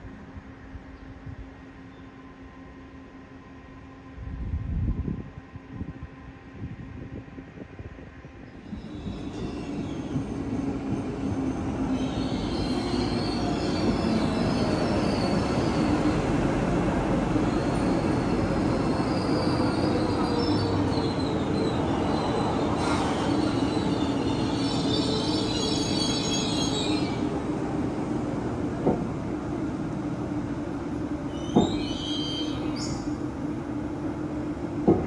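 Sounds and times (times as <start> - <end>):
electric train rumbling: 0.0 - 35.0
train motor whine: 8.6 - 27.4
high-pitched brake squealing: 11.9 - 16.0, 17.5 - 27.2, 31.3 - 33.2.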